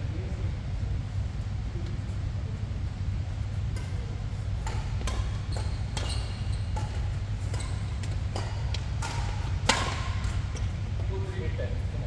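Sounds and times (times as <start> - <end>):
low hum of sports hall: 0.0 - 12.0
badminton racket hitting shuttlecock: 4.6 - 10.6.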